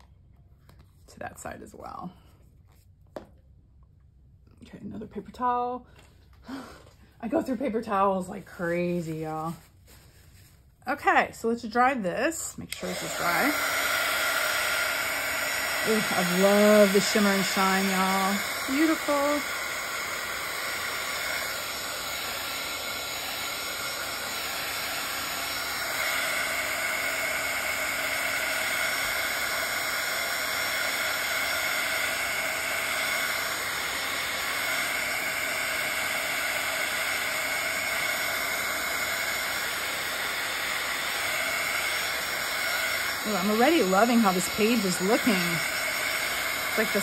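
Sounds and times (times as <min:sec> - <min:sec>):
heat tool blowing hot air: 0:12.7 - 0:47.0.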